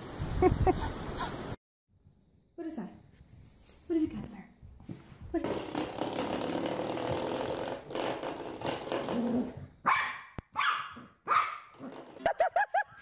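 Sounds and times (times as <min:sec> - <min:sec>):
dog barking: 0:09.8 - 0:11.7.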